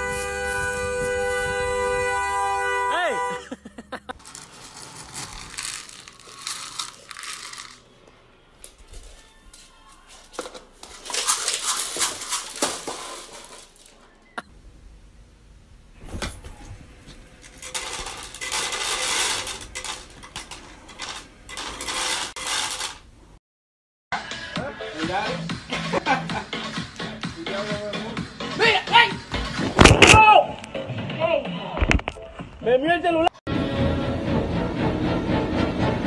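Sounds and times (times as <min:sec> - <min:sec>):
dry kibble rattling and clattering: 0:04.2 - 0:07.9, 0:08.6 - 0:14.0, 0:17.3 - 0:23.0.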